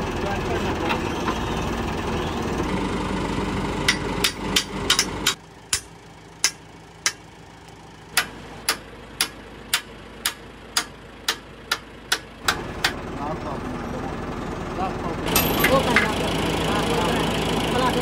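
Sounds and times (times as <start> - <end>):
engine running: 0.0 - 18.0
hammer striking steel: 3.9 - 7.2, 8.2 - 13.0.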